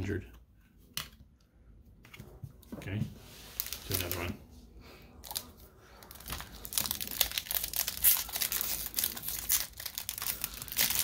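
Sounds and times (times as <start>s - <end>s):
foil wrapper crinkling and tearing: 5.2s - 11.0s.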